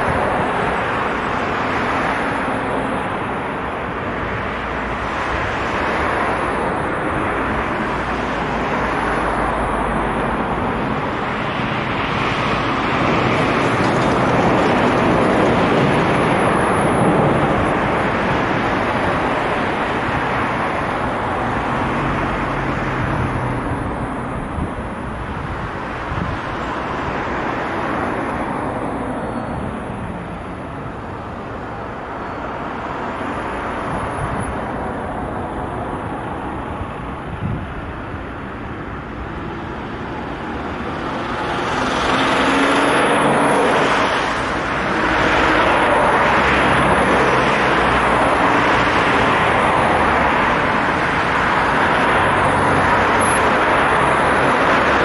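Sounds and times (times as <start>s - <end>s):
road traffic passing: 0.0s - 55.0s.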